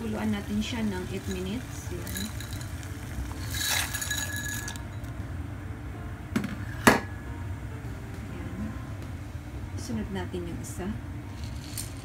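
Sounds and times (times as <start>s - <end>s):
steady low hum: 0.0s - 12.0s
dry pasta pouring into pot: 0.5s - 4.8s.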